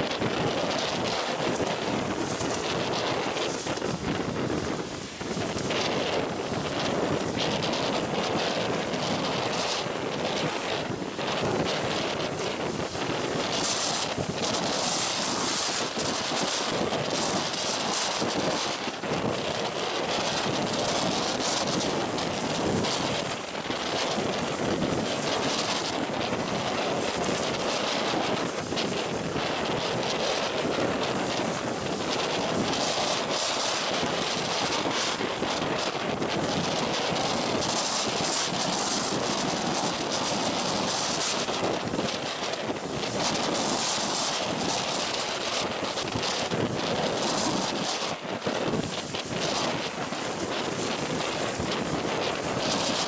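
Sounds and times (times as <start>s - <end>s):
gusts buffeting microphone: 0.0s - 53.0s
waves breaking: 0.0s - 53.0s
wind roaring: 0.0s - 53.0s.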